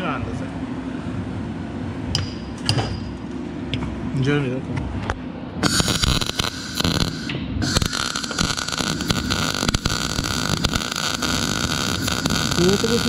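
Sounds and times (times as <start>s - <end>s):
welding arc crackling: 5.6s - 13.0s.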